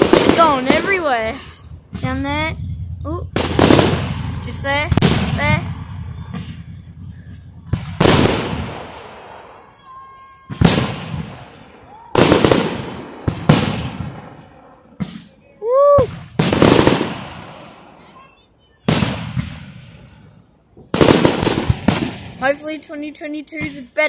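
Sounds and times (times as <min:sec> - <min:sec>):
crackling rumble: 0:00.0 - 0:09.6
fireworks bangs: 0:00.0 - 0:24.0.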